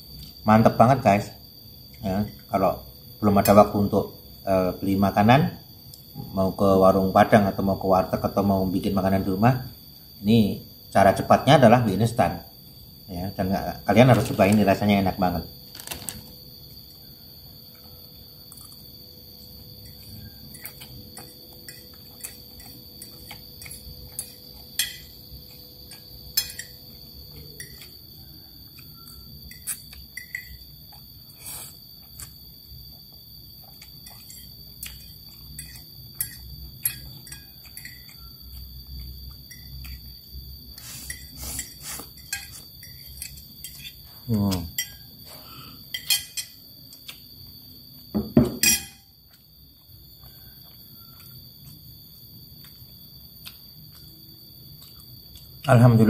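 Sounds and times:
crickets trilling: 0.0s - 56.0s
fork scraping a ceramic plate: 40.8s - 44.0s.

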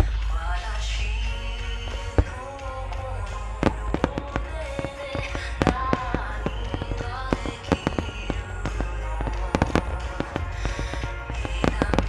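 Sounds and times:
music with long held notes: 0.0s - 12.0s
fireworks bangs and crackles: 1.3s - 12.0s.

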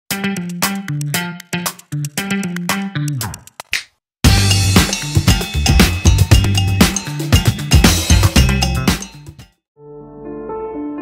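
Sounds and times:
plucked guitar-like jingle: 4.3s - 9.4s.

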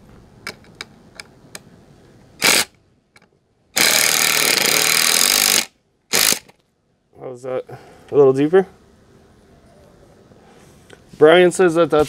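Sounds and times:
cordless drill driving screw: 2.4s - 2.7s, 3.8s - 6.6s.

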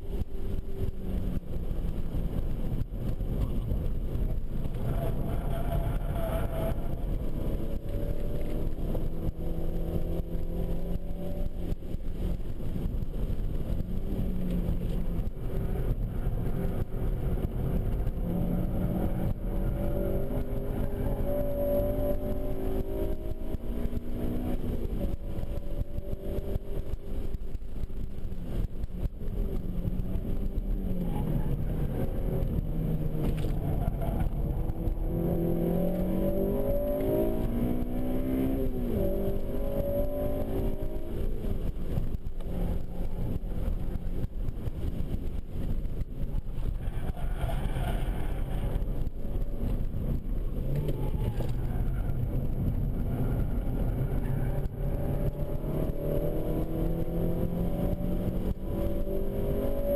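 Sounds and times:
car engine revving: 0.0s - 59.9s
road and wind noise: 0.0s - 59.9s.

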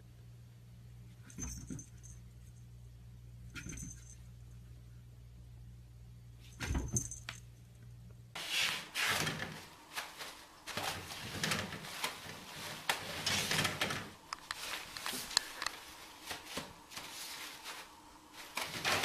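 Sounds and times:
curtain rustling: 8.4s - 19.0s.

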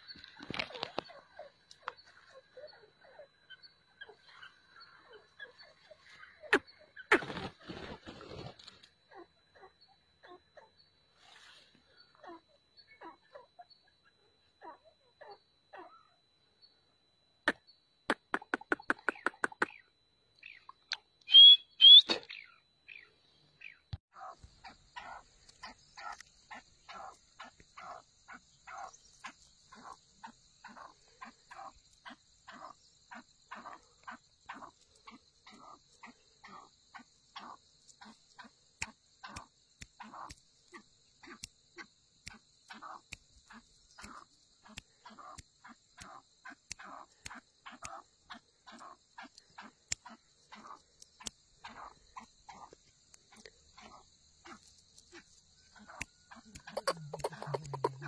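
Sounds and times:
bird repeating call notes: 20.4s - 23.0s, 46.0s - 58.0s.

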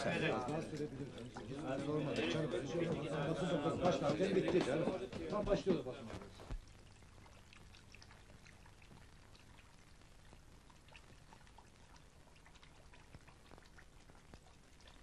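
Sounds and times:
film soundtrack hiss and hum: 0.0s - 15.0s
light crackles: 5.2s - 15.0s.

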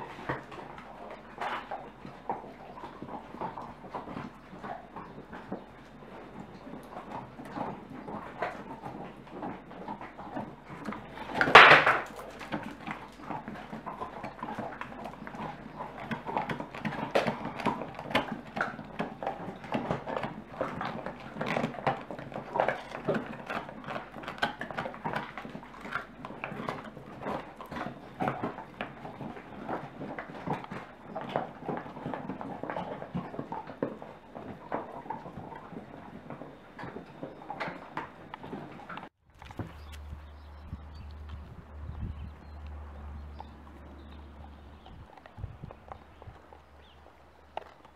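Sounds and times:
dogs crunching bones: 0.0s - 47.9s.

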